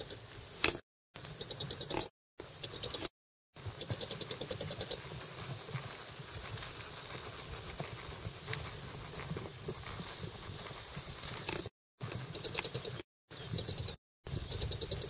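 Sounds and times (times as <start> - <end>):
horse hoofbeats on grass and gravel: 3.6 - 13.7.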